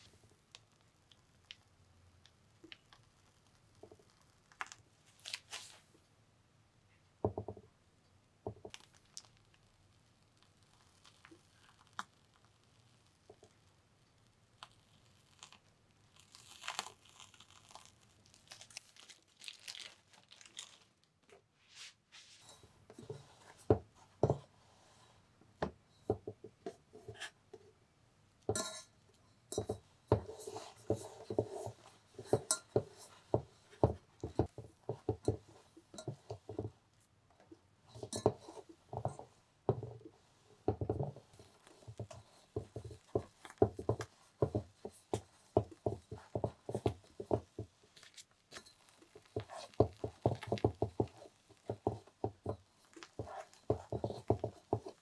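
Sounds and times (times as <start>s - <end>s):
spatula scraping cream: 29.5s - 36.8s, 37.9s - 39.4s, 40.2s - 55.0s.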